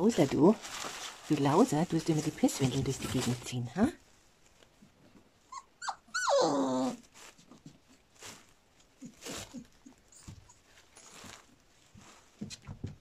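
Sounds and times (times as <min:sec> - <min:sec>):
faint rustles: 0:00.0 - 0:05.5, 0:06.8 - 0:13.0
puppy squeaking: 0:05.5 - 0:07.0
puppy whining cry: 0:05.5 - 0:07.1.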